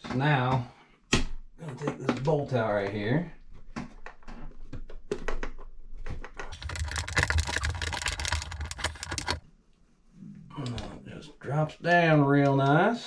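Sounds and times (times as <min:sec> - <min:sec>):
metal rattles: 0:06.5 - 0:09.4.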